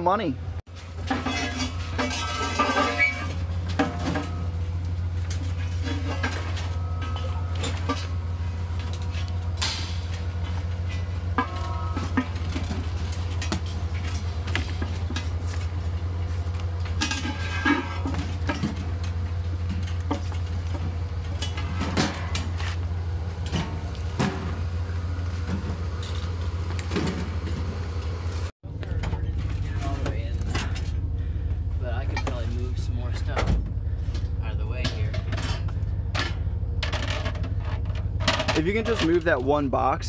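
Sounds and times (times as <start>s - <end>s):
low hum: 0.3s - 40.0s
metal rack knocking and clanking: 1.0s - 4.6s, 9.6s - 15.3s
metallic ring: 1.0s - 4.6s, 5.7s - 8.2s, 10.9s - 12.8s.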